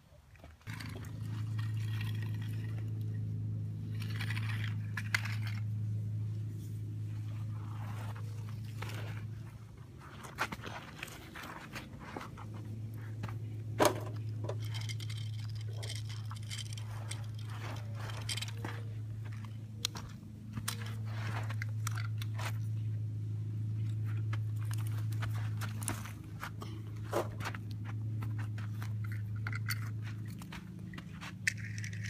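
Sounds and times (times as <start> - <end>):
steady low hum: 0.1 - 32.0
toy tractors scraping through dirt: 0.6 - 3.1, 3.8 - 5.8, 13.8 - 22.6.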